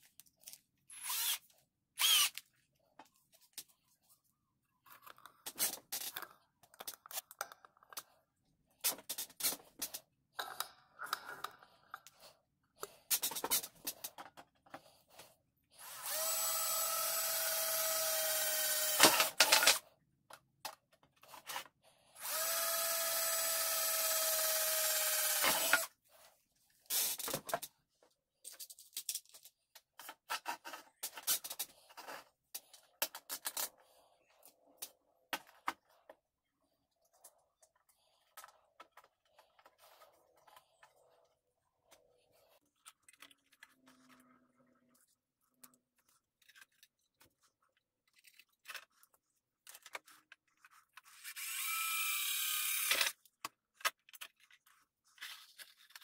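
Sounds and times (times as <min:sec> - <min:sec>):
power drill boring metal: 0:00.9 - 0:01.4, 0:02.0 - 0:02.4, 0:15.8 - 0:19.8, 0:22.2 - 0:25.9, 0:51.2 - 0:53.1.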